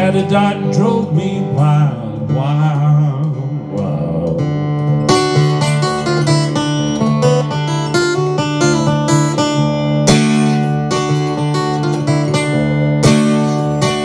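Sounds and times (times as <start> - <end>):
acoustic guitar blues: 0.0 - 14.0.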